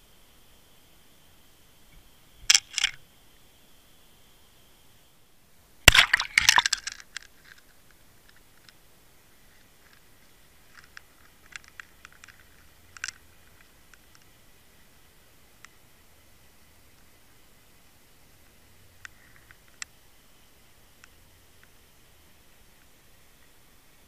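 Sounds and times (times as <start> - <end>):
underwater clicks and crackles: 2.5 - 3.0, 5.9 - 8.8, 9.8 - 14.3.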